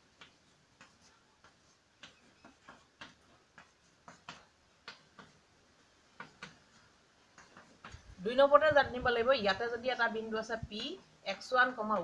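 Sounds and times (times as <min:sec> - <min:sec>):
chalk tapping and scratching: 0:00.0 - 0:08.2.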